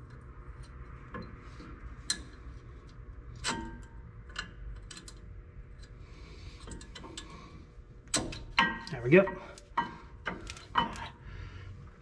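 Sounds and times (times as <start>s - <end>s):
light metal clicks and taps: 2.0s - 5.2s.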